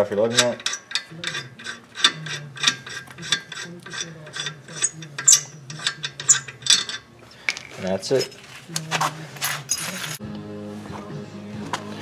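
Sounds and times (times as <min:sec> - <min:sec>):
ratchet wrench clicking: 0:00.0 - 0:07.1.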